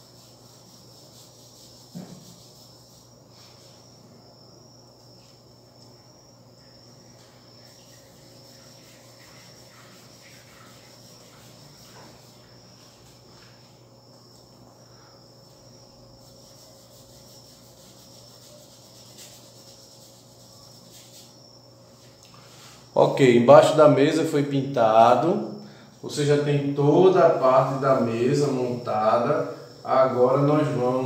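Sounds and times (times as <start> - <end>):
paint brush rubbing on canvas: 0.0 - 4.0, 7.0 - 14.6, 15.3 - 22.9.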